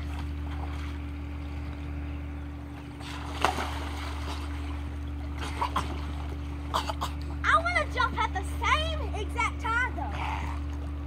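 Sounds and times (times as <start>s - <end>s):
water splashes: 0.0s - 2.0s, 2.8s - 8.8s
pool water sloshing: 0.0s - 11.0s
steady low hum: 0.0s - 11.0s.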